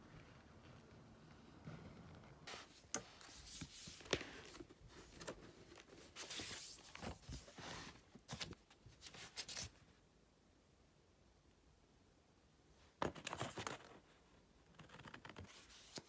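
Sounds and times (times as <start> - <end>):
paper rustling: 2.5 - 9.8.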